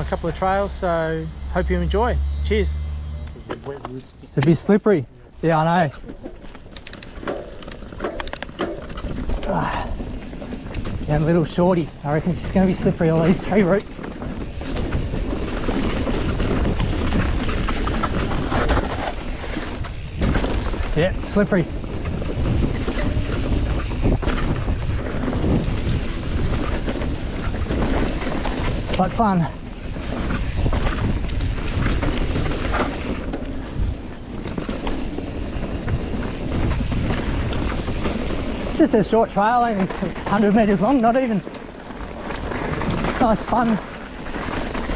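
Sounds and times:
bike tyres rumbling on dirt: 5.5s - 44.9s
bike frame knocks and rattles: 6.0s - 9.4s, 12.2s - 29.1s
wind buffeting microphone: 6.1s - 44.9s.

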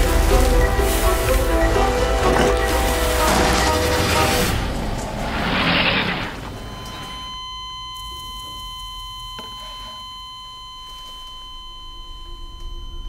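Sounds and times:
low rumble: 0.0s - 7.4s
high electronic tones: 6.4s - 13.0s.

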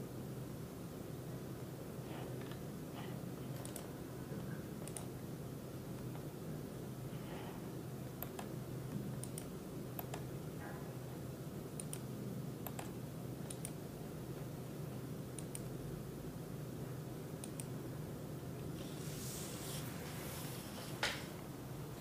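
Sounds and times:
low room hum: 0.0s - 22.0s
computer input clicks: 3.5s - 3.9s, 4.8s - 5.2s, 9.2s - 10.3s, 11.8s - 13.8s, 15.4s - 15.7s.

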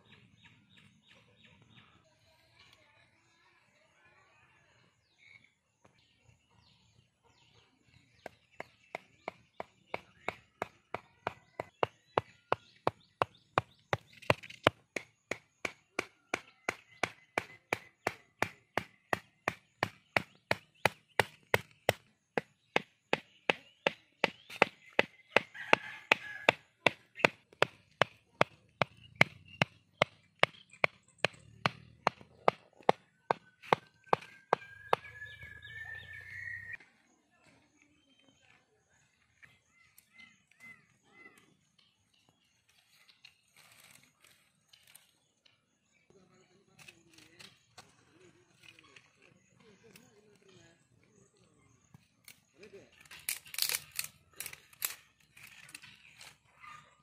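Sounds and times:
blade chopping on wood: 8.2s - 35.1s.

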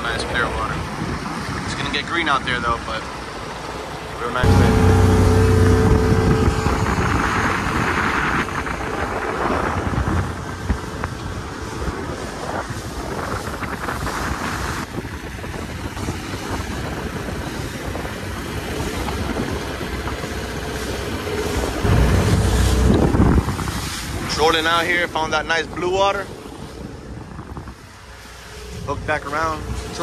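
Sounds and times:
water rushing past hull: 0.0s - 30.0s
outboard motor running: 4.4s - 7.9s, 17.1s - 24.1s
wind buffeting microphone: 4.4s - 30.0s.

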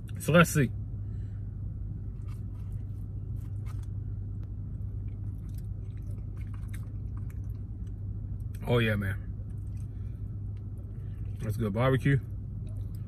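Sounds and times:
steady low hum: 0.0s - 13.0s
person chewing: 2.1s - 4.0s, 4.9s - 8.6s.

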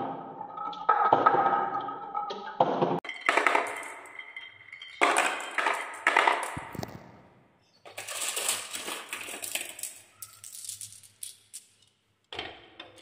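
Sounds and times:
marbles clacking on wooden run: 3.0s - 7.2s, 7.9s - 12.0s.

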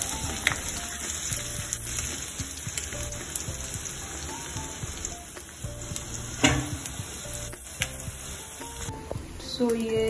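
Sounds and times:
onions sizzling in oil: 0.0s - 10.0s
sharp knock: 6.4s - 6.8s.

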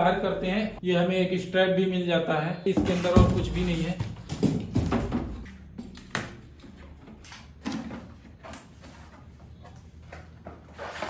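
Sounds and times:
cardboard scraping and rustling: 2.8s - 5.2s, 8.3s - 11.0s.

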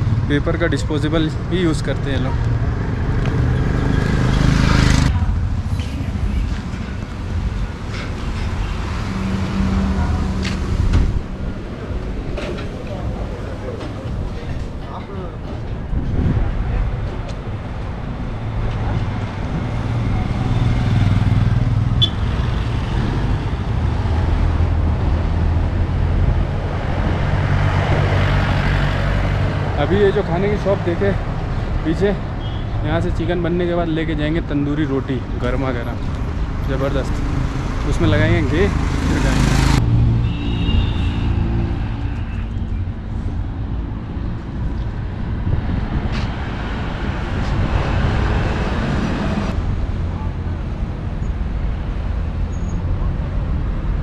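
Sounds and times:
street traffic engines: 0.0s - 54.0s
motor scooter passing: 3.0s - 5.5s
wind on microphone: 15.7s - 20.8s, 23.0s - 29.6s, 41.7s - 50.2s.

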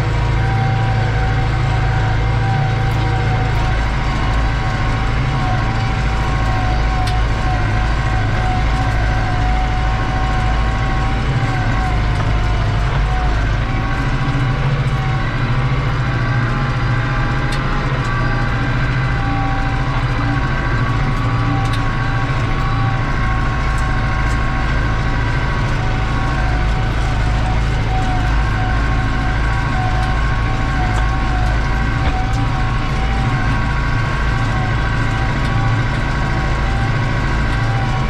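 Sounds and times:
tractor diesel engine under load: 0.0s - 38.0s
turbo whine: 0.0s - 38.0s.

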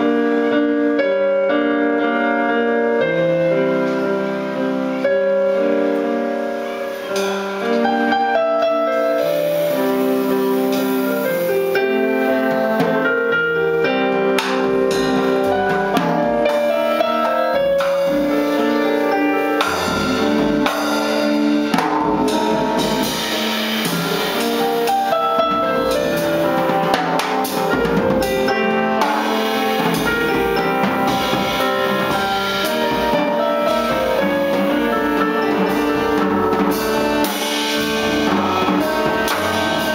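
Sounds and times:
drum kit and cymbals: 0.0s - 39.9s
electric keyboard chords: 0.0s - 39.9s.

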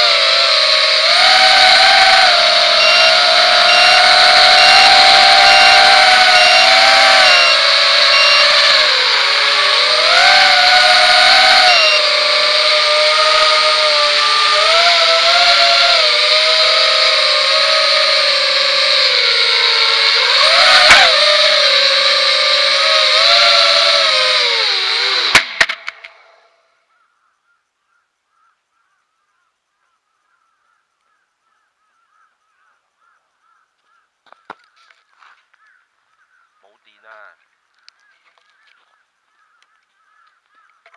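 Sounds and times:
quadcopter motors whining: 0.0s - 27.0s.

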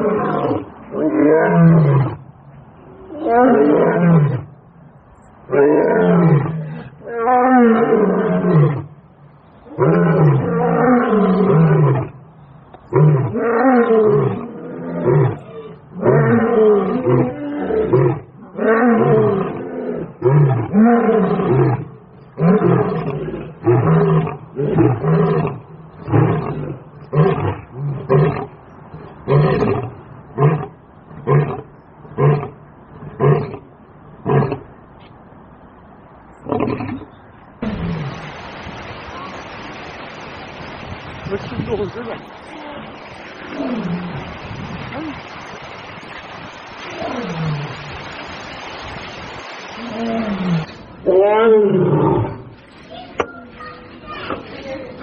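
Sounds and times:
lion roaring: 0.0s - 2.2s, 5.5s - 9.0s, 9.7s - 12.2s, 12.9s - 34.6s, 43.4s - 44.3s, 46.8s - 47.9s, 49.8s - 52.5s.

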